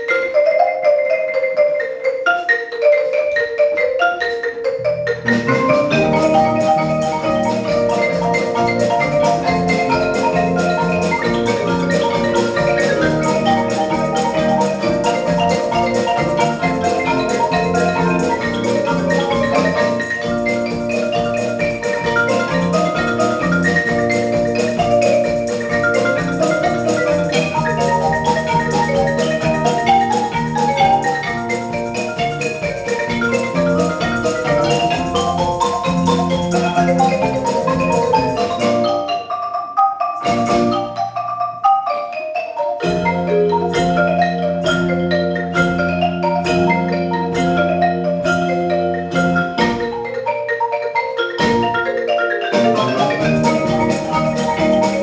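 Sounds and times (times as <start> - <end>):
marimbas and xylophones playing: 0.0 - 55.0
low accompaniment: 4.3 - 39.1, 51.4 - 55.0.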